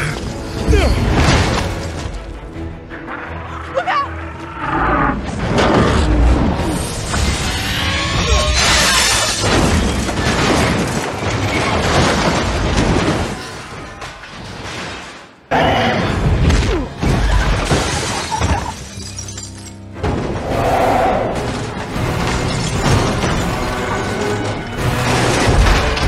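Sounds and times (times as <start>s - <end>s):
background film score: 0.0s - 26.0s
glass shattering: 8.3s - 15.2s, 17.5s - 19.9s, 22.2s - 24.2s.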